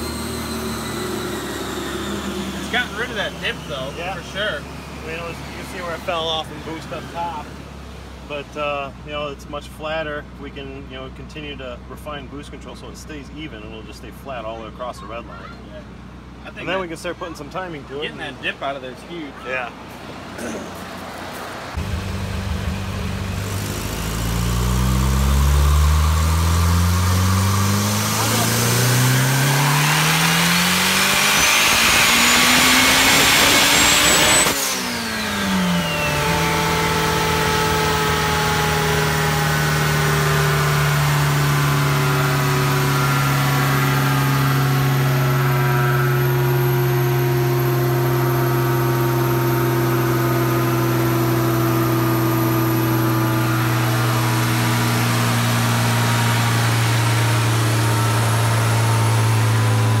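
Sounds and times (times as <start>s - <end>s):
car engine revving: 0.0s - 9.0s, 19.8s - 60.0s
high turbo whine: 0.0s - 14.9s, 16.0s - 60.0s
engine idling: 21.8s - 27.1s.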